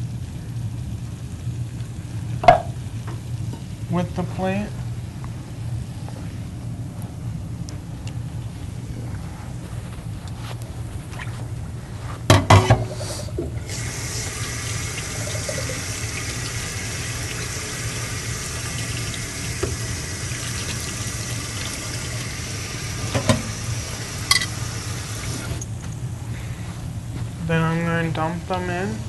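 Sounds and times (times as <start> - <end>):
tap running into sink: 13.4 - 25.6.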